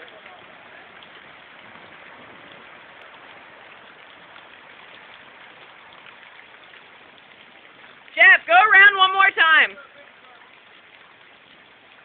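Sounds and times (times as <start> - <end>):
rain hissing on water: 0.0 - 12.0.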